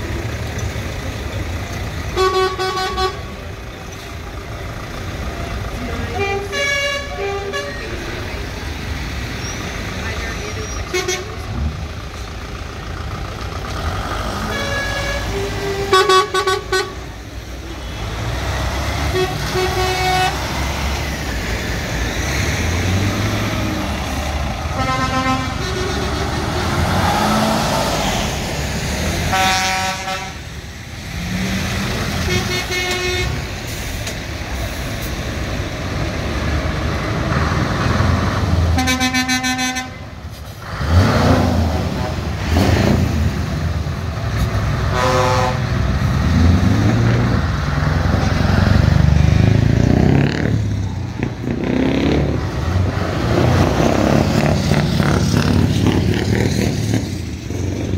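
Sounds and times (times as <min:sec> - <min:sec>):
lorry diesel engines running: 0:00.0 - 0:57.9
lorry horns tooting: 0:05.9 - 0:08.1, 0:14.2 - 0:21.0, 0:22.8 - 0:27.9, 0:29.2 - 0:30.5, 0:31.8 - 0:33.6, 0:38.7 - 0:40.2, 0:44.8 - 0:47.1.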